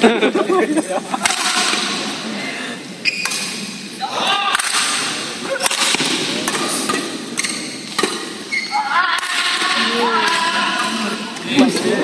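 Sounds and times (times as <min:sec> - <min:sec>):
sports hall noise: 0:00.0 - 0:12.0
rackets striking shuttlecock: 0:01.2 - 0:02.1, 0:03.1 - 0:03.9, 0:04.5 - 0:08.6, 0:10.2 - 0:12.0.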